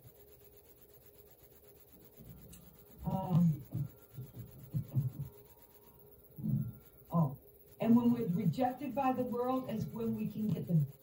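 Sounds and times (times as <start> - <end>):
woman murmuring: 3.0 - 5.3, 6.4 - 10.8.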